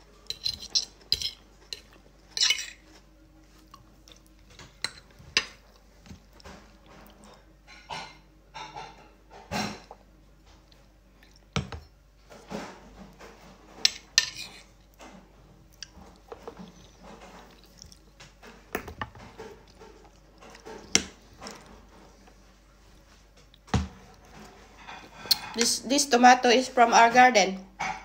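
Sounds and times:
cutlery clinking on a ceramic plate: 0:00.3 - 0:02.8, 0:13.8 - 0:14.7.

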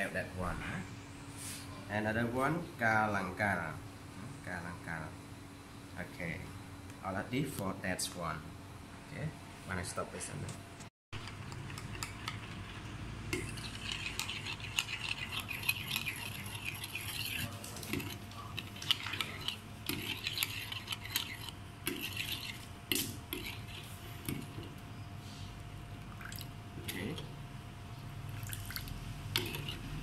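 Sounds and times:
metal spoon scraping clay bowl: 0:11.3 - 0:24.8, 0:29.3 - 0:30.0.

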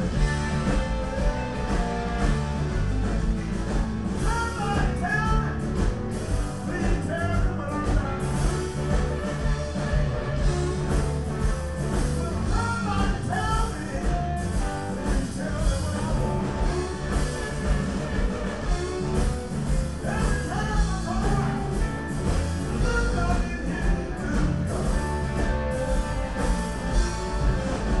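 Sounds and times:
electric guitar bending notes: 0:00.0 - 0:28.0
live blues band: 0:00.0 - 0:28.0.

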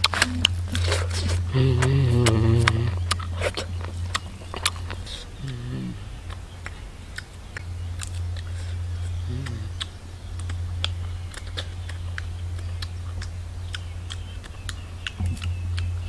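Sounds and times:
person eating with mouth smacking: 0:00.0 - 0:16.0
steady low hum: 0:00.0 - 0:16.0
low mm voice sound: 0:00.2 - 0:03.8, 0:04.8 - 0:06.4, 0:08.7 - 0:09.9.

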